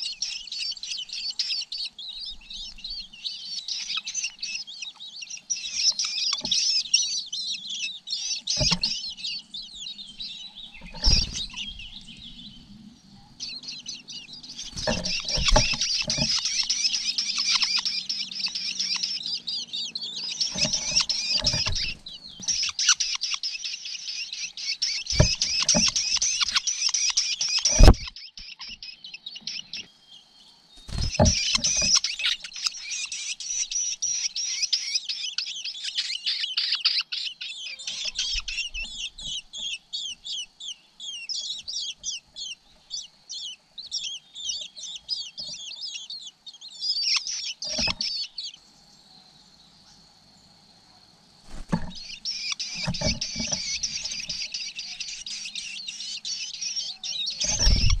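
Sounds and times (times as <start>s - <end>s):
nestlings cheeping: 0.0s - 28.8s, 30.8s - 37.0s, 51.4s - 58.0s.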